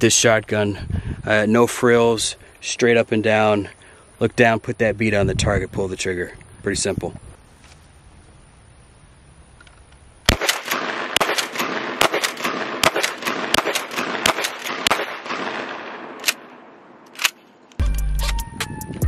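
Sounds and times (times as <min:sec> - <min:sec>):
rolling echo: 0:10.3 - 0:17.0
shotgun blasts: 0:10.3 - 0:17.4.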